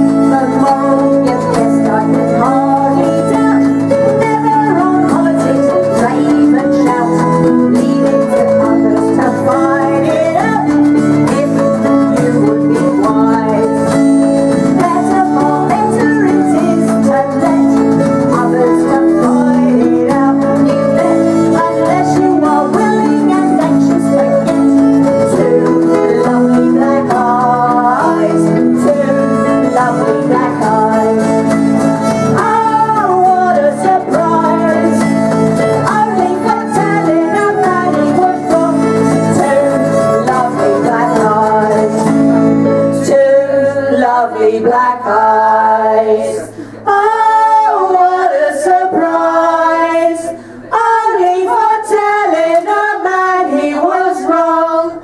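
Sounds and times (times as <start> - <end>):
acoustic guitar: 0.0 - 55.0
fiddle: 0.0 - 55.0
women singing: 0.0 - 55.0.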